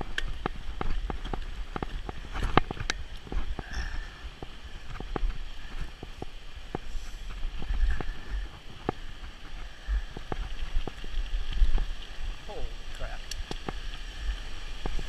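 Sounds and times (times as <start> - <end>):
bike clicking and rattling over bumps: 0.0 - 15.0
wind buffeting microphone: 0.0 - 15.0.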